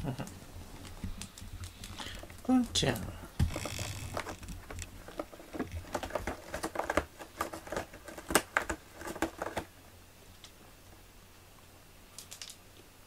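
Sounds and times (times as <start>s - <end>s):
cat scratching cardboard: 3.4s - 9.7s.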